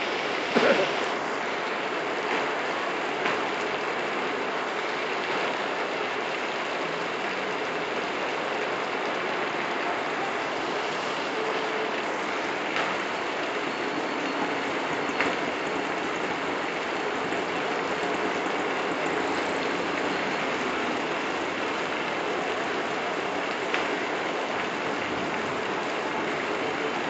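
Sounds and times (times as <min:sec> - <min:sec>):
heavy rain on pavement: 0:00.0 - 0:27.0
rain taps: 0:00.0 - 0:27.0.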